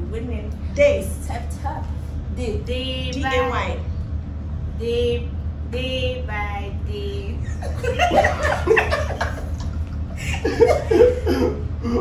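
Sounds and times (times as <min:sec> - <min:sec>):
people laughing: 0:07.5 - 0:12.0.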